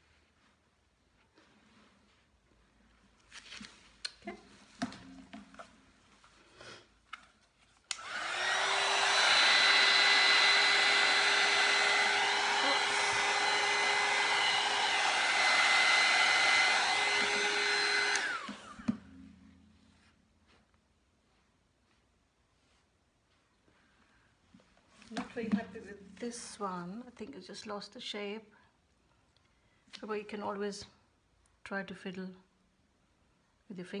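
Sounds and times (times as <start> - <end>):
heat gun blowing air: 7.9 - 19.2.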